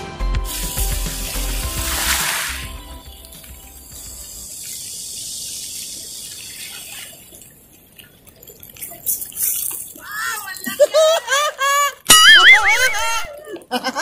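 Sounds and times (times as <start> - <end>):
fish splashing in shallows: 0.6 - 10.8.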